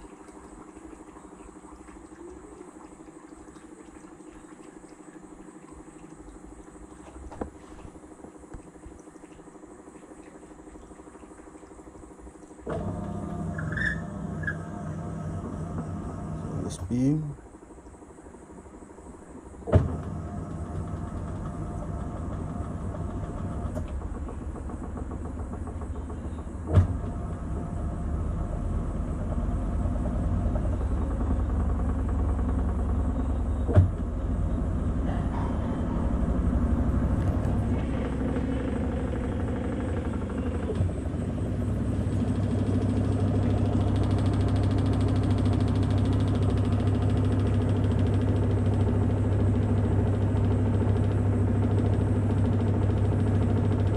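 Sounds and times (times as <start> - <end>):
washing machine spinning: 0.0 - 53.9.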